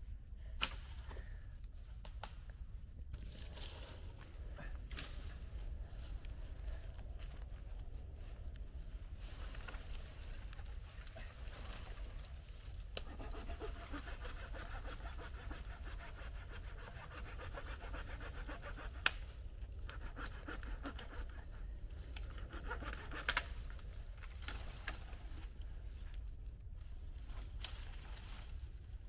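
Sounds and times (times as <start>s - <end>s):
hand saw rasping through wood: 13.0s - 19.2s, 19.8s - 21.6s, 22.2s - 23.5s.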